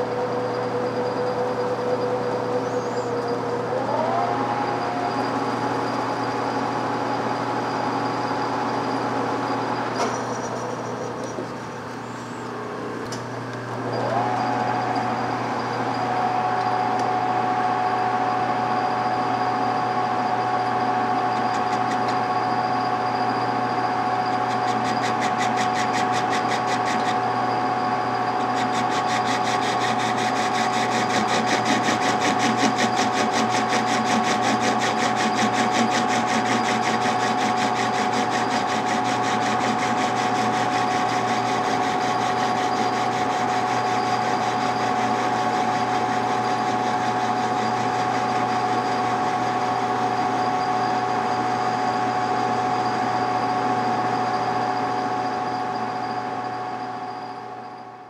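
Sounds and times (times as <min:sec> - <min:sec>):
metal lathe whining: 0:00.0 - 0:12.8, 0:13.7 - 0:57.8.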